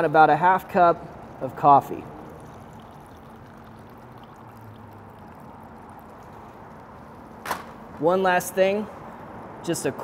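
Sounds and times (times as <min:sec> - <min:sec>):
coffee pouring trickle: 0:00.0 - 0:07.4.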